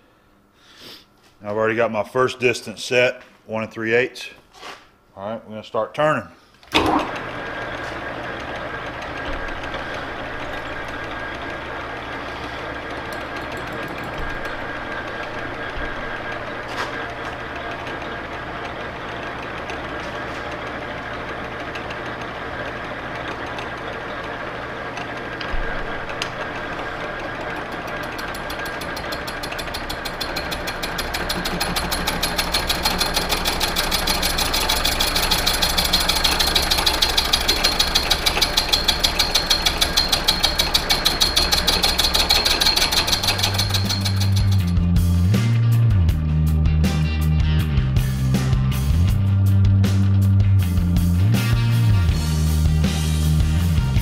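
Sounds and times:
lathe cutting metal: 0:06.8 - 0:45.0.

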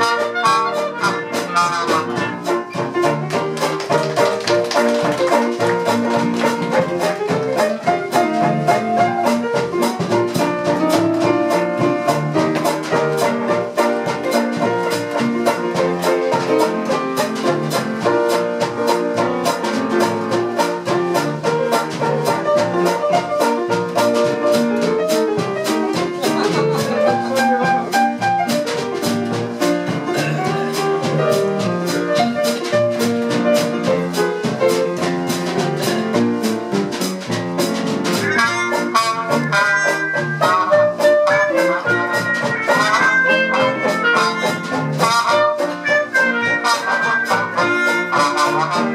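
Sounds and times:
clarinet: 0:00.0 - 0:04.2, 0:06.6 - 0:17.6, 0:20.6 - 0:29.0, 0:38.1 - 0:48.9
trumpet: 0:00.0 - 0:09.5, 0:38.0 - 0:48.9
double bass: 0:00.0 - 0:48.9
piano: 0:00.0 - 0:48.9.

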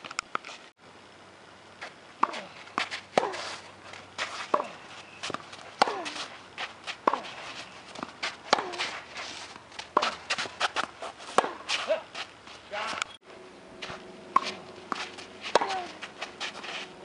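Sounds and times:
racquets striking tennis ball: 0:01.8 - 0:13.2, 0:13.8 - 0:17.0
shoes squeaking on court: 0:01.9 - 0:13.2, 0:13.8 - 0:17.0
ball bouncing: 0:06.9 - 0:11.7, 0:13.8 - 0:16.2.

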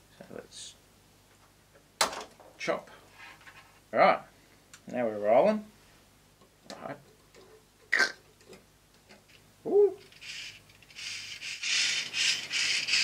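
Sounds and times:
plastic parts rustling and scraping: 0:03.0 - 0:03.8, 0:10.0 - 0:13.0.

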